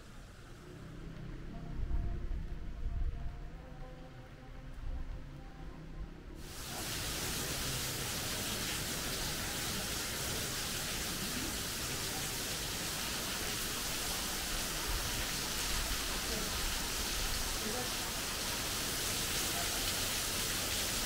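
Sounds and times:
waterfall rushing: 0:06.4 - 0:21.0.

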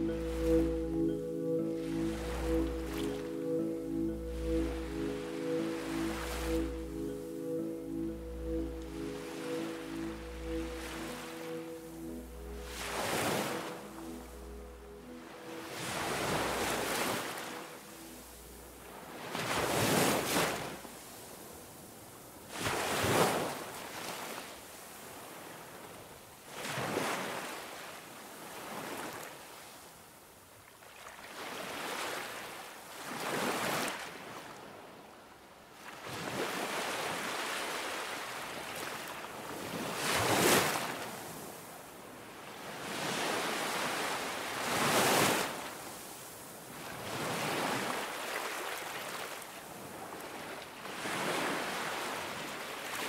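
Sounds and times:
ocean waves washing in: 0:00.0 - 0:21.4.

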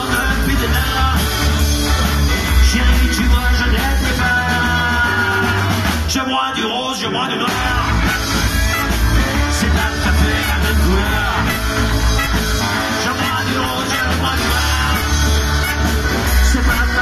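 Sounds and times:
live rock and roll band: 0:00.0 - 0:17.0
person singing: 0:00.0 - 0:17.0.

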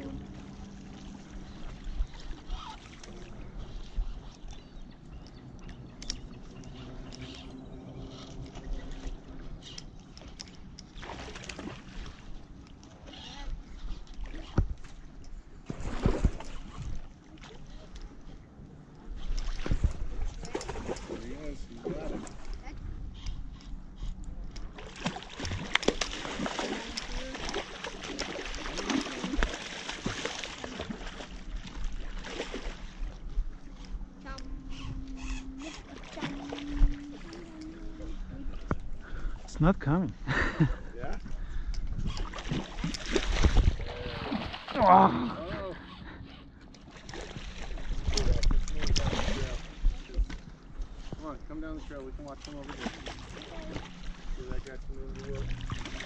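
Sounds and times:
rippling river water: 0:00.0 - 0:56.0
fish splashing: 0:09.8 - 0:12.3, 0:24.7 - 0:33.1, 0:42.0 - 0:45.1
wind rumble on microphone: 0:19.1 - 0:21.0, 0:41.2 - 0:44.5.

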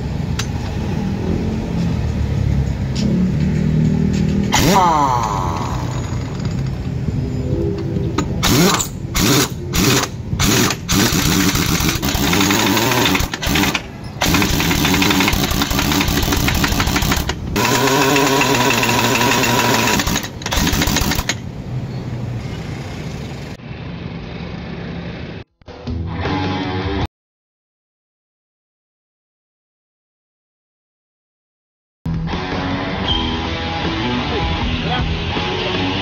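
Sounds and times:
impact wrench hammering: 0:08.2 - 0:21.4.

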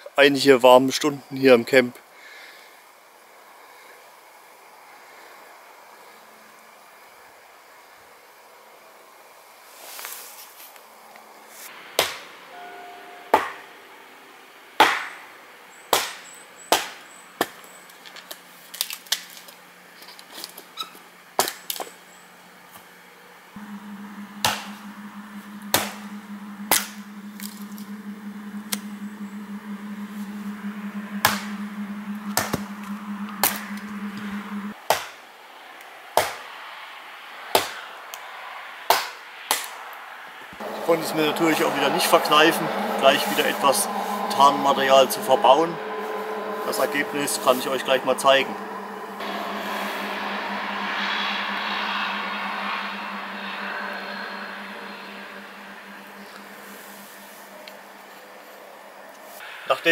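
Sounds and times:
low steady hum: 0:23.6 - 0:34.8, 0:40.6 - 0:58.0.

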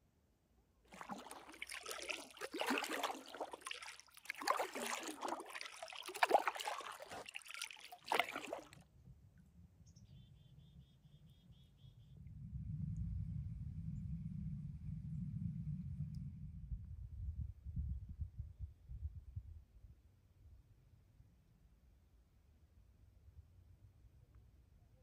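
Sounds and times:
paddle splashing water: 0:00.9 - 0:08.8.

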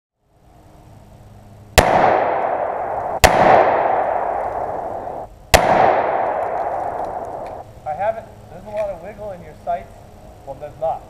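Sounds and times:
gunshots with echoing decay: 0:01.8 - 0:07.6.

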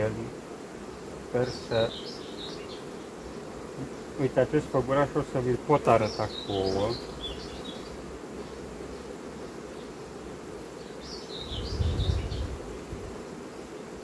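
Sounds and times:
honeybees buzzing: 0:00.0 - 0:14.0
bird chirping: 0:01.4 - 0:04.2, 0:05.8 - 0:09.1, 0:10.8 - 0:12.6.

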